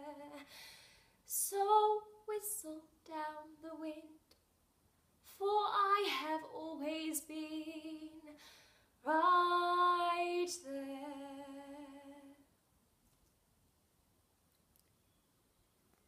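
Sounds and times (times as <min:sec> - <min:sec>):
woman singing unaccompanied: 0:00.0 - 0:00.4, 0:01.3 - 0:04.3, 0:05.3 - 0:08.4, 0:09.0 - 0:12.4.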